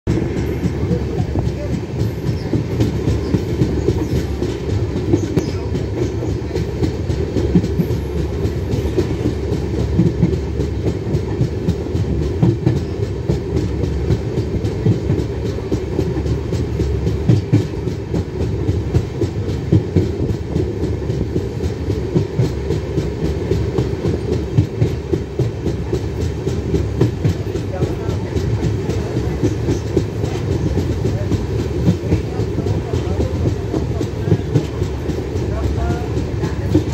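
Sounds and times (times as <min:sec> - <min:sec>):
train wheels rumbling on rails: 0:00.0 - 0:36.9.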